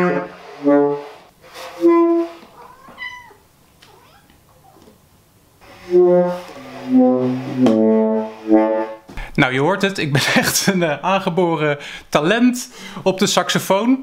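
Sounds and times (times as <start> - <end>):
held low saxophone notes: 0.0 - 2.5, 5.6 - 9.1.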